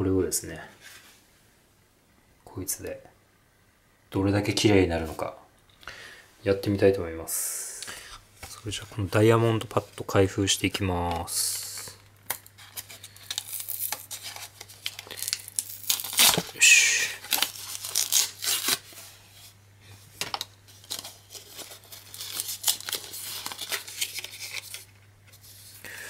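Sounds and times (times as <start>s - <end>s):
plastic packaging tearing: 11.6s - 19.1s, 20.3s - 25.0s.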